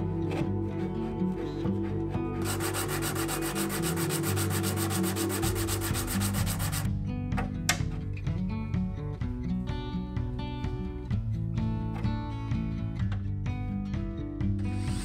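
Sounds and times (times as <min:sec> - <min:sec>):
background music: 0:00.0 - 0:15.0
metal rubbed on sandpaper: 0:02.4 - 0:06.9.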